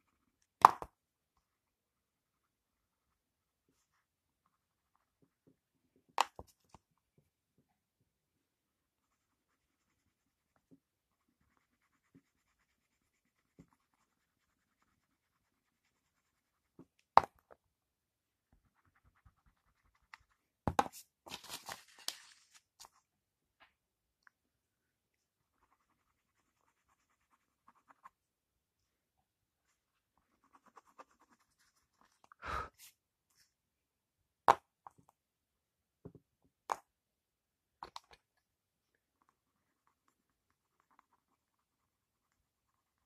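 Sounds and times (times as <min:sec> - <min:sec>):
pencil scratching on paper: 0:08.8 - 0:17.0, 0:18.5 - 0:21.0, 0:25.4 - 0:28.2, 0:29.7 - 0:32.3.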